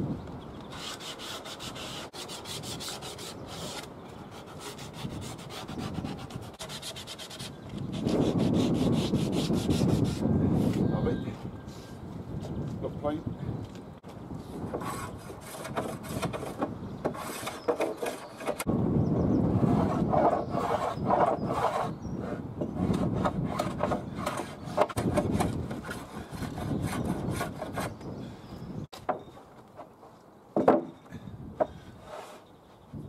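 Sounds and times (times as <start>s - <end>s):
sandpaper rubbing wood: 0.7s - 10.2s, 19.6s - 21.9s
wooden plank knock: 30.6s - 31.0s.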